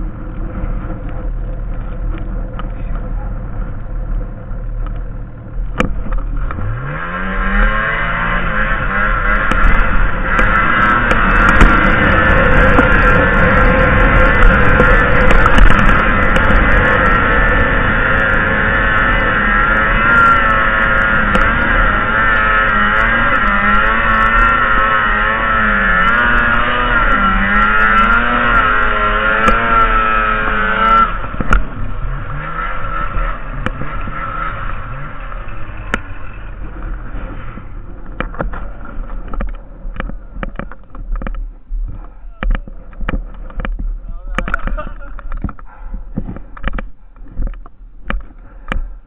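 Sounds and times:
snowmobile engine revving: 0:05.4 - 0:39.2
clicks and knocks: 0:37.5 - 0:48.9.

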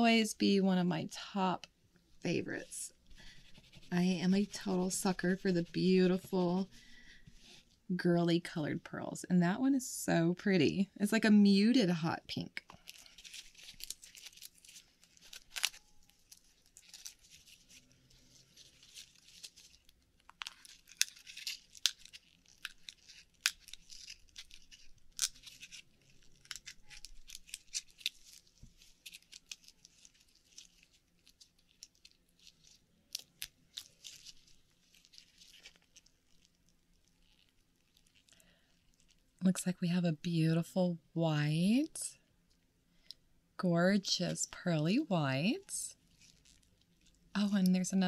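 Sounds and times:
tearing sounds: 0:12.6 - 0:39.2.

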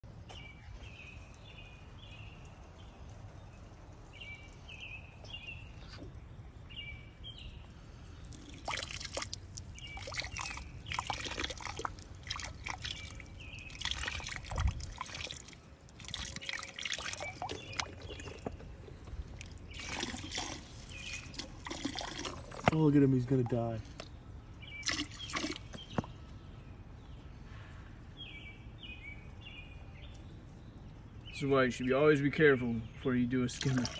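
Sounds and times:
water pouring and splashing: 0:00.0 - 0:26.3, 0:33.4 - 0:33.9.

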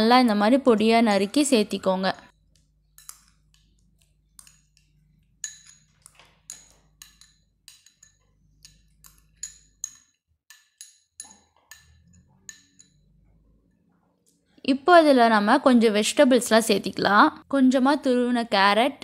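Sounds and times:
spoon clinking on glass bowl: 0:02.5 - 0:13.3.

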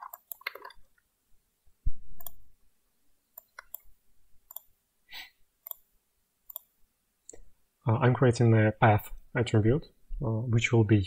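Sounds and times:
mouse and keyboard clicks: 0:00.0 - 0:00.9, 0:02.2 - 0:02.4, 0:03.4 - 0:03.9, 0:04.5 - 0:04.7, 0:05.6 - 0:05.8, 0:06.5 - 0:06.7.

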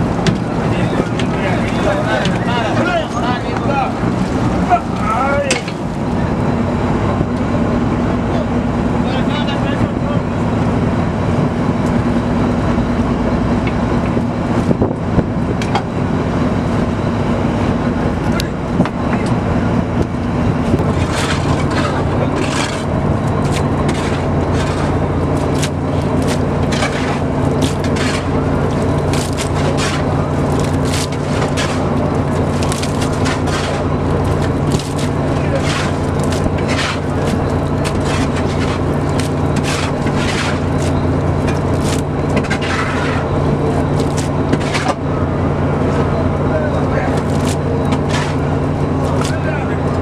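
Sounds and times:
boat engine running: 0:00.0 - 0:50.0
fish scraping and slapping on deck: 0:20.8 - 0:43.3, 0:43.9 - 0:45.0, 0:47.2 - 0:49.4.

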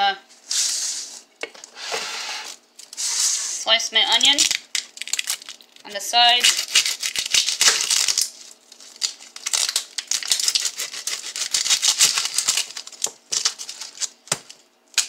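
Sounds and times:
dry onion skin crackling: 0:04.3 - 0:15.0.

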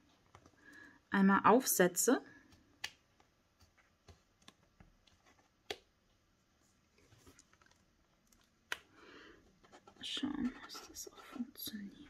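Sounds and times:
soft paper rustle: 0:06.6 - 0:08.6, 0:09.5 - 0:11.8.

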